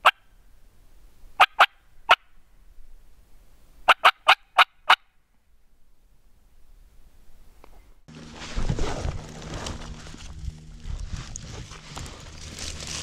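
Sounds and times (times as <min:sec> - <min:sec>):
turkey call clucks: 0:00.0 - 0:00.2, 0:01.4 - 0:02.3, 0:03.8 - 0:05.1.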